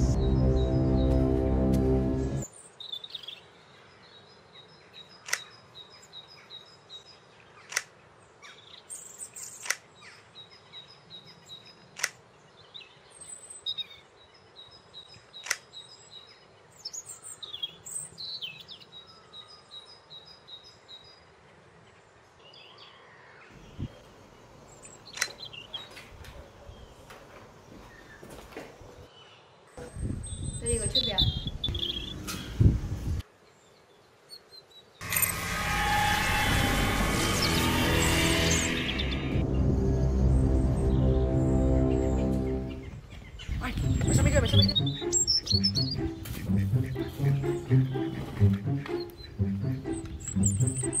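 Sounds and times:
bird chirping: 0.0 - 21.3, 22.3 - 35.4, 37.2 - 51.0
sharp plastic clicks: 5.2 - 5.6, 7.6 - 8.0, 9.6 - 9.9, 11.9 - 12.2, 15.4 - 15.8.

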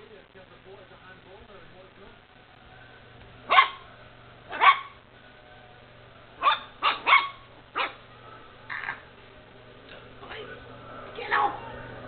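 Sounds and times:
puppy barking: 3.5 - 3.9, 4.5 - 5.0, 6.4 - 8.0.

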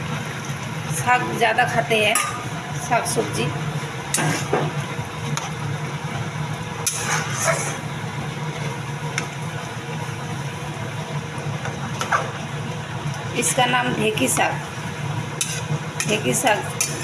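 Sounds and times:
spatula scraping a pan: 4.1 - 4.6, 6.8 - 7.9, 15.4 - 17.0.

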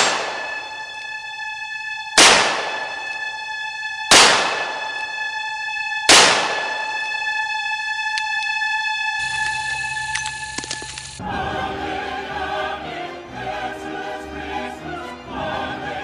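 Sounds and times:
reverberant gunshots: 0.0 - 0.5, 2.2 - 3.0, 4.1 - 4.9, 6.1 - 6.9
sustained high musical tone: 6.9 - 16.0.

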